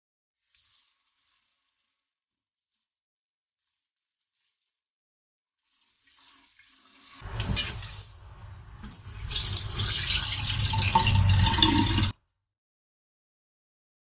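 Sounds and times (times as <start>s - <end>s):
hands swishing rice in water: 0.4s - 11.1s
water poured into sink: 5.6s - 12.2s.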